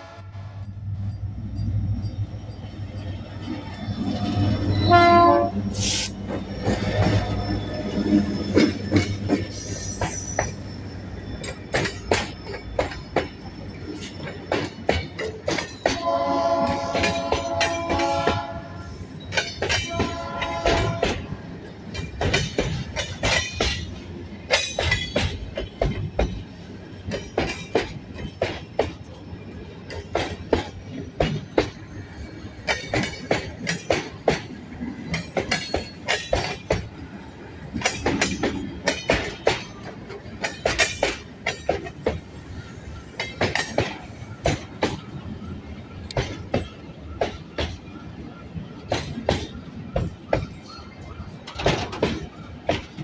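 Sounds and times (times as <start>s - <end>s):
train horn: 0.0s - 0.6s, 4.7s - 6.0s, 15.9s - 19.0s, 19.8s - 21.4s
train wheels clacking on rail joints: 1.6s - 53.0s.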